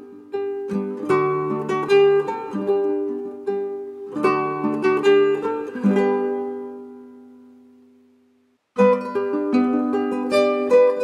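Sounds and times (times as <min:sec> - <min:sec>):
plucked string melody: 0:00.0 - 0:08.1, 0:08.8 - 0:11.0.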